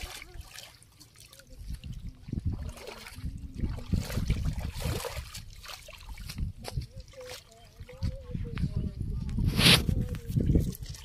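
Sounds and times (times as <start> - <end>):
shallow water splashing: 0.0 - 8.2.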